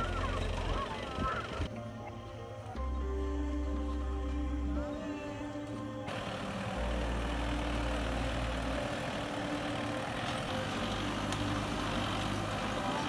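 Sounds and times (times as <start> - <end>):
vehicle engine droning: 0.0 - 1.7, 6.0 - 13.0.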